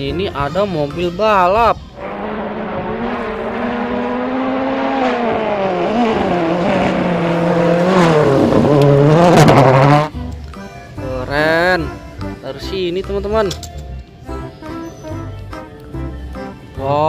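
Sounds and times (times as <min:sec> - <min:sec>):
rally car engine revving: 0:02.0 - 0:10.2.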